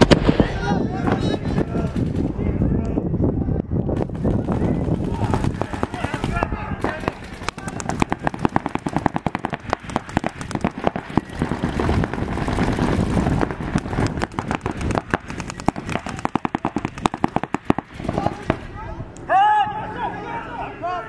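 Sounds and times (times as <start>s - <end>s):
paintball markers firing: 4.0s - 18.6s.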